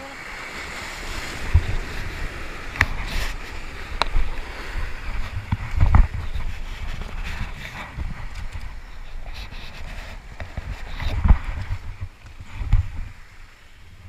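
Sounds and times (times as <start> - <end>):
surf breaking over rocks: 0.0 - 9.1
wind on microphone: 0.0 - 14.0.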